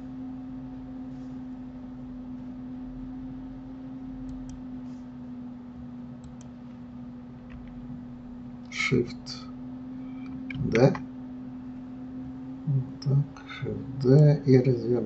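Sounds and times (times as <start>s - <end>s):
steady hum: 0.0s - 15.0s
computer mouse clicks: 4.2s - 4.6s, 6.2s - 6.6s.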